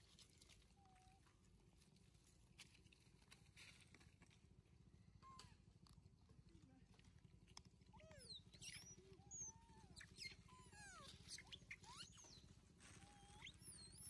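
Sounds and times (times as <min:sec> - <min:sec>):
monkey squeaks and chirps: 0:07.9 - 0:14.0.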